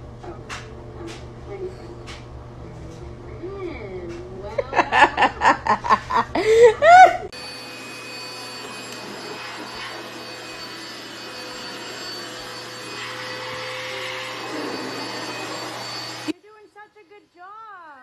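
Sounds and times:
voice: 0.2 - 5.4, 16.4 - 18.0
handheld vacuum cleaner running: 7.3 - 16.3.

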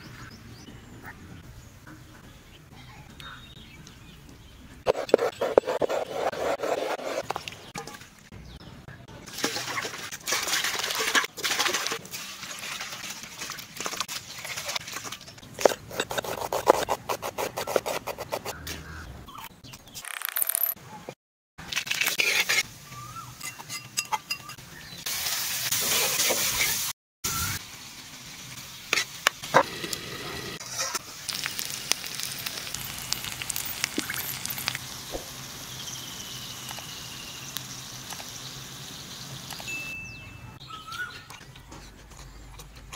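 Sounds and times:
food sizzling in a pan: 25.1 - 39.4.

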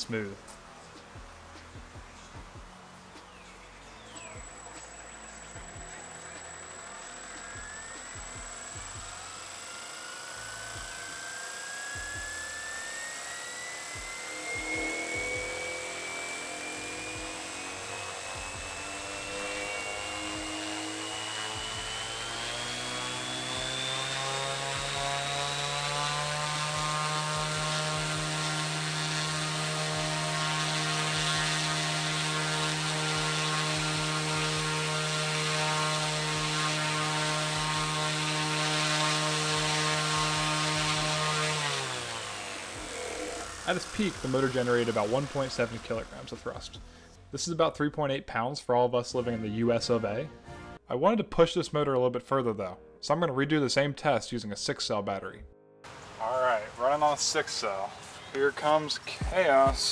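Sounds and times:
propeller whir with electric whine: 4.2 - 46.2.

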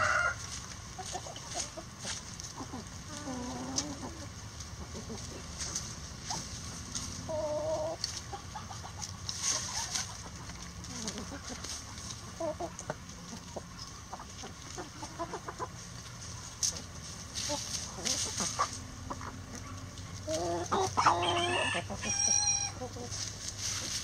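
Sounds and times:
rooster crowing: 0.0 - 0.4, 20.7 - 22.8
chickens clucking softly: 0.0 - 24.0
chickens pecking: 0.0 - 24.0.

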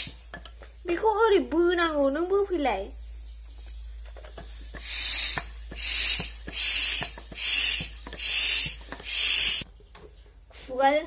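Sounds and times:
hand pump hissing strokes: 0.0 - 0.5, 1.4 - 9.6.

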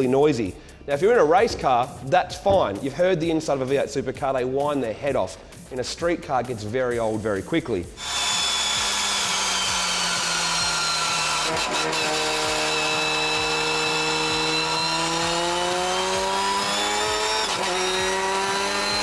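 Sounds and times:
race car engine running: 13.5 - 19.0.

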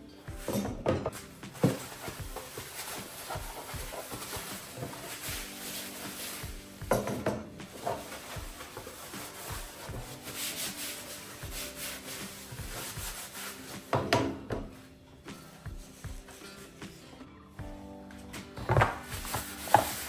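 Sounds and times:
paper towel rubbing plastic: 1.1 - 6.9, 7.6 - 14.2, 15.4 - 17.0, 18.7 - 20.0.

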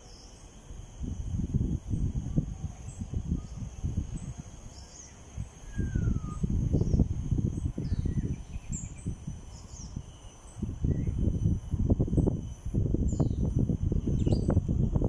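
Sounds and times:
high insect drone: 0.0 - 15.0
wind rumble on microphone: 0.7 - 15.0
bird chirps: 2.8 - 11.2, 14.2 - 14.6
falling whistle: 5.6 - 6.9.

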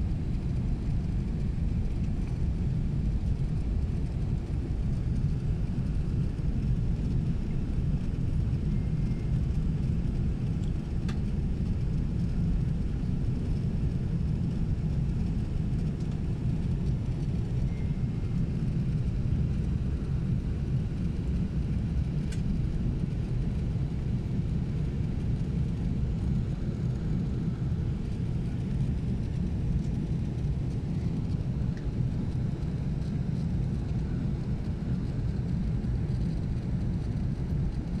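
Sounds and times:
aircraft cabin rumble: 0.0 - 38.0.

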